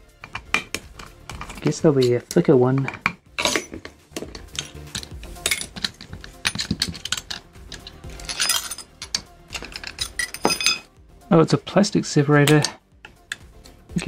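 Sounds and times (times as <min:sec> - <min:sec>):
metallic clicks and clinks: 0:00.2 - 0:10.9.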